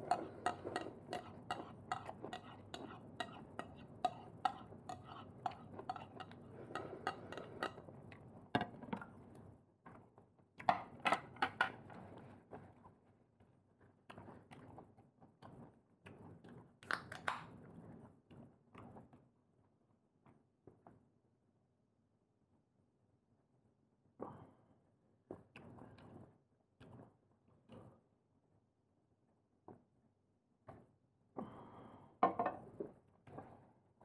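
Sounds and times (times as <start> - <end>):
dishes and cutlery clinking: 0.0 - 7.8.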